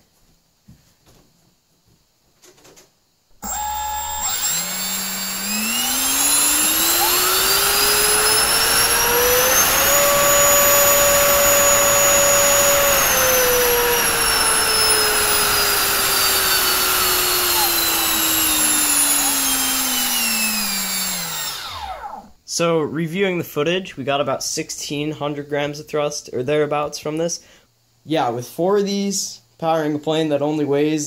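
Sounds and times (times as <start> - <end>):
electric ducted fan whining: 3.4 - 22.7.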